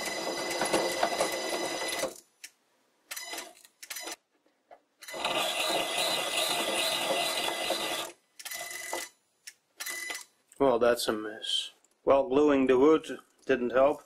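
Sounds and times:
tool bit cutting wood: 5.1 - 8.1.

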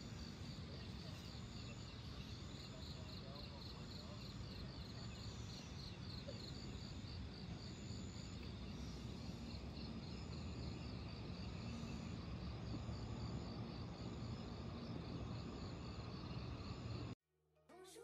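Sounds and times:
high drawn-out insect trill: 0.0 - 17.2
insects pulsing chirps: 0.0 - 17.2.

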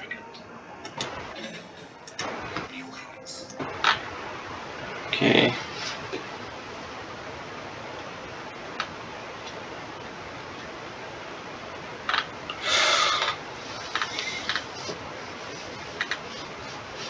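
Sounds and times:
microphone hiss: 0.0 - 17.0
rustling noise: 5.6 - 6.4, 13.2 - 17.0.

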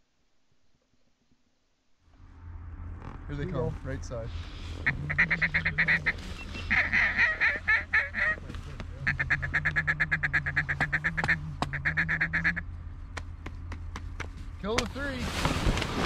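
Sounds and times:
steady low hum: 1.4 - 16.0
duck call chatter: 4.7 - 12.7.

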